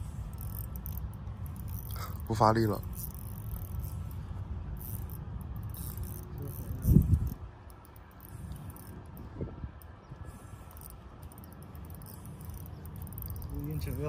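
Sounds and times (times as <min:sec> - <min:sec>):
fishing reel drag buzzing: 0:00.0 - 0:14.0
wind rumble on microphone: 0:03.7 - 0:14.0.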